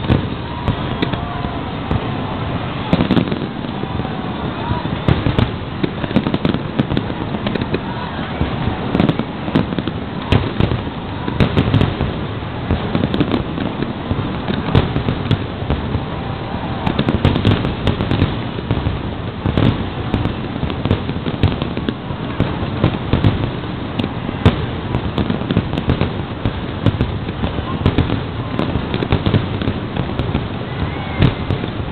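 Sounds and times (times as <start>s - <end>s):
fireworks booming and cracking: 0.0s - 31.9s.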